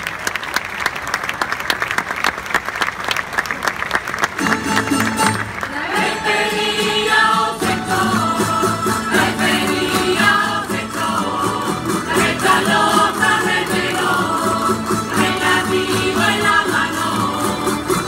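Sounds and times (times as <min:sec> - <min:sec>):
plucked string instruments: 0:04.4 - 0:18.0
voices singing together: 0:05.7 - 0:18.0.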